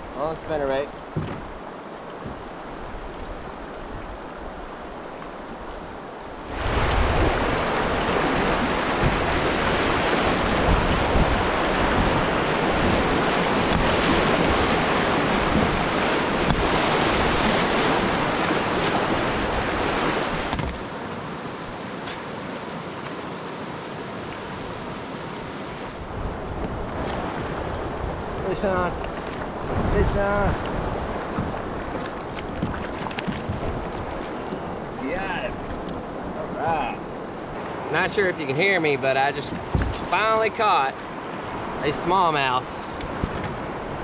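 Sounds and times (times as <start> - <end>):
wind buffeting microphone: 1.1 - 20.8, 25.9 - 37.6
whitewater rushing: 6.4 - 43.0.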